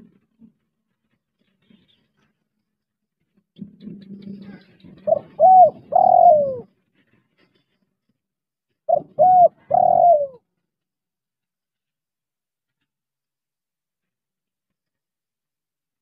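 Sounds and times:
dove cooing: 5.0s - 6.7s, 8.9s - 10.4s.

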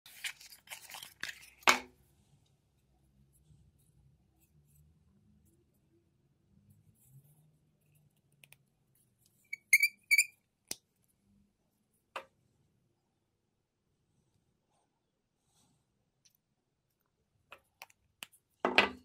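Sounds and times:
cork cap squeaking: 9.5s - 10.3s.

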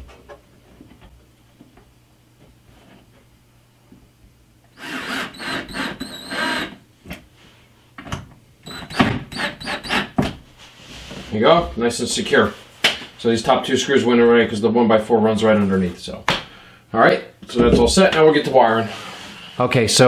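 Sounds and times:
cordless drill driving screws: 4.8s - 6.8s, 8.6s - 10.2s.

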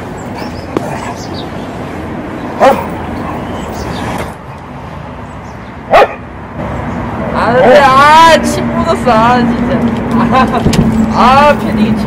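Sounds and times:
outdoor background noise: 0.0s - 12.0s
dog barking: 2.6s - 3.5s, 5.9s - 6.3s.

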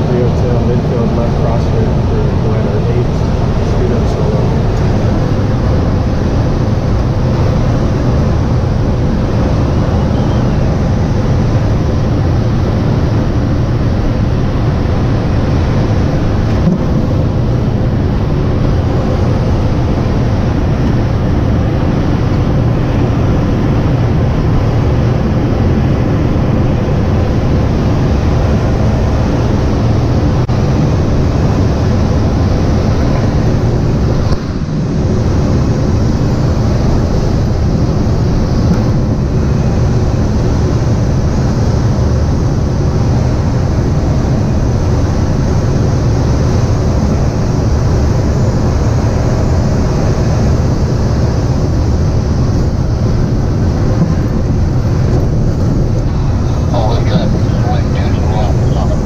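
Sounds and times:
rush of air in glider cockpit: 0.0s - 59.0s
wind buffeting microphone: 0.0s - 59.0s
faint steady whistle: 9.9s - 10.6s.

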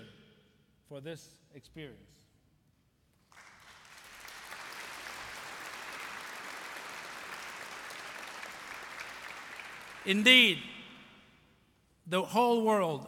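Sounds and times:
audience applauding: 3.3s - 10.8s.

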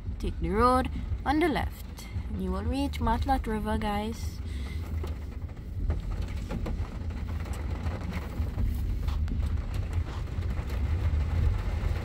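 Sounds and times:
car road and engine rumble: 0.0s - 12.0s.

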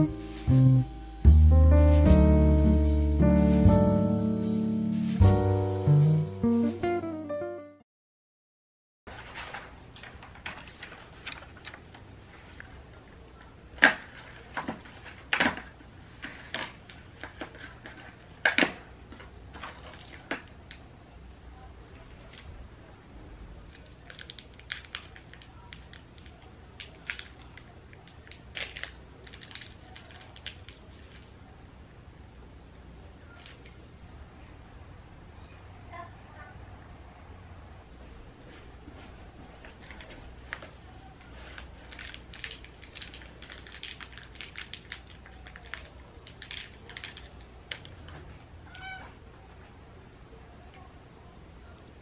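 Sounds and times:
cat collar bell jingling: 37.8s - 40.7s, 41.4s - 48.6s
cat meowing: 48.7s - 49.2s.

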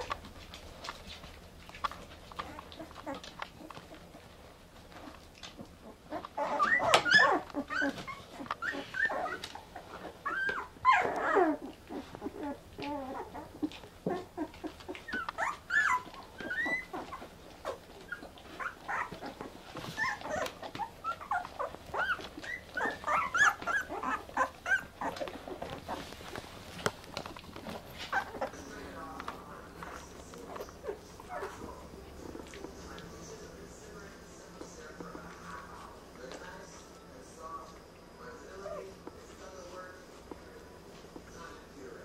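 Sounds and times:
puppies squeaking and whimpering: 0.0s - 32.9s.

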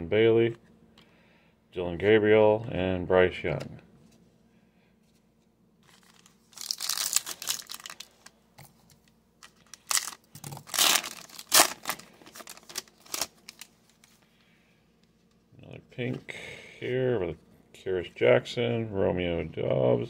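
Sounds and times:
foil wrapper tearing and crinkling: 5.8s - 8.3s, 9.4s - 14.1s.

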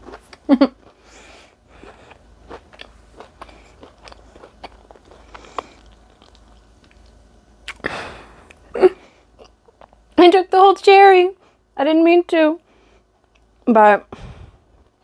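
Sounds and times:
person chewing crunchy cookie: 0.0s - 10.2s.

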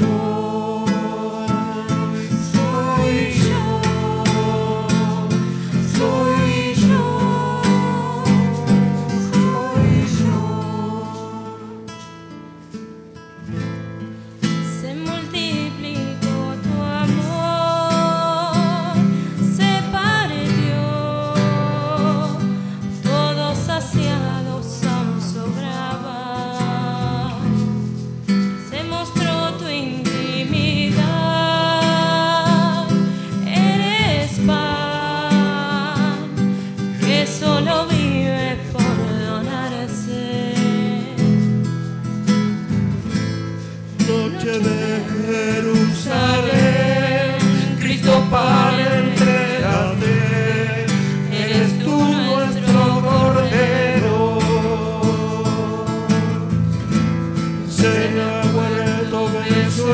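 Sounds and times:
person singing a hymn: 0.0s - 12.0s, 44.0s - 56.5s, 57.7s - 59.9s
acoustic guitar: 0.0s - 59.9s.

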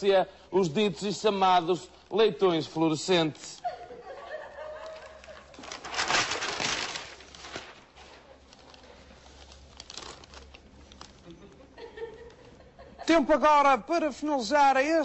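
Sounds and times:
paper rustling and crinkling: 4.4s - 12.4s
flip-chart page turning: 4.8s - 11.4s.

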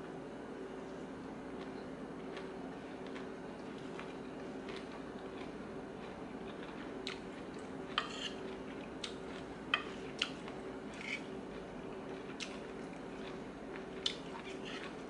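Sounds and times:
steady low hum: 0.0s - 15.0s
person chewing with crunches: 1.5s - 15.0s
spoon scraping on plate: 7.9s - 8.4s, 10.9s - 11.3s.

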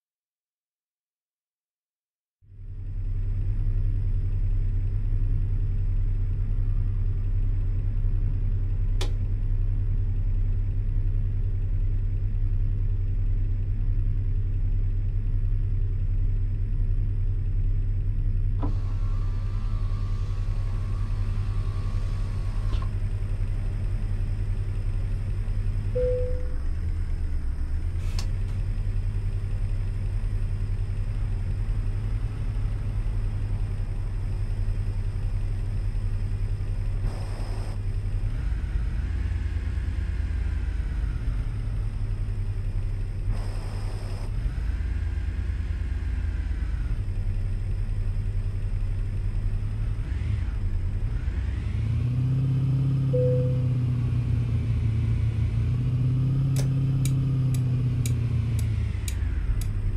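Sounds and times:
car engine and road noise: 2.4s - 59.9s
short beep: 26.0s - 26.6s, 53.2s - 53.9s.

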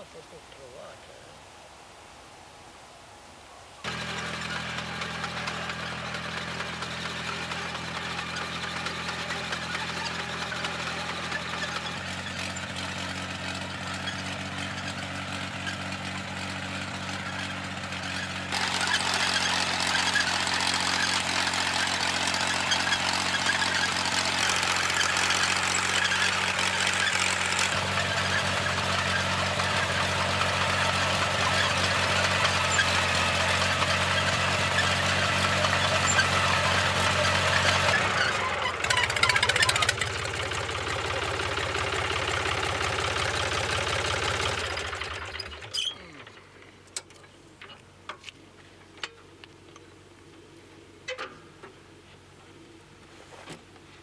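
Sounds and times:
tractor engine running: 3.8s - 50.5s
harsher noisy engine layer: 3.9s - 46.7s.

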